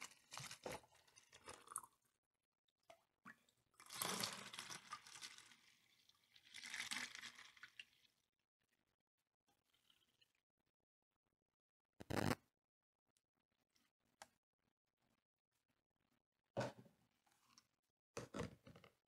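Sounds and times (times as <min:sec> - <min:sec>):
liquid pouring through funnel: 0:03.8 - 0:08.1.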